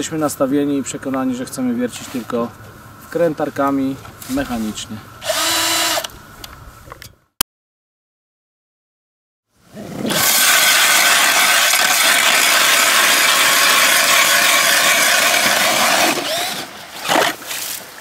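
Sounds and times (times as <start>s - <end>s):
drill motor whining: 5.2s - 6.1s, 10.2s - 16.6s
auger grinding ice: 10.0s - 17.8s.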